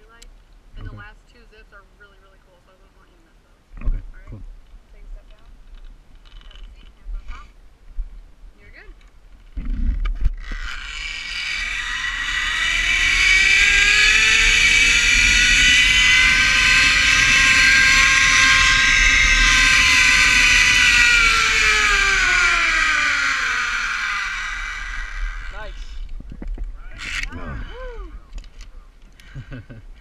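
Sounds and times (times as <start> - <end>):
wind on microphone: 0.0 - 2.1, 6.4 - 28.5
zipline pulleys whining: 10.4 - 26.2, 27.0 - 28.6.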